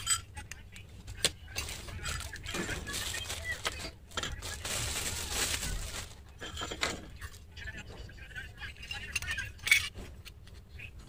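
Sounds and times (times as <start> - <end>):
plastic bags crinkling: 1.5 - 7.4.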